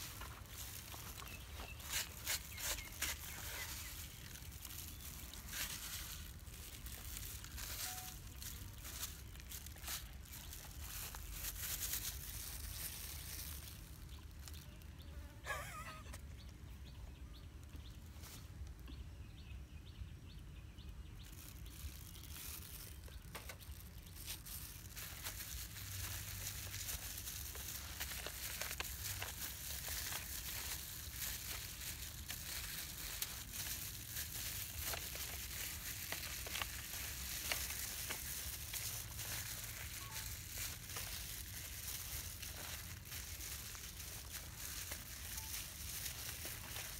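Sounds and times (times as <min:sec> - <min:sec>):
gloved hand handling meat in foil: 0:00.0 - 0:14.8, 0:21.2 - 0:46.9.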